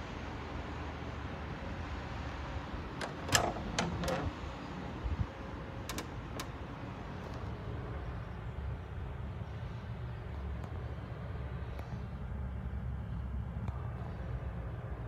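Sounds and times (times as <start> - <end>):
door latch click: 3.0 - 4.4, 5.8 - 6.6
knocks and clicks from door: 3.0 - 4.4.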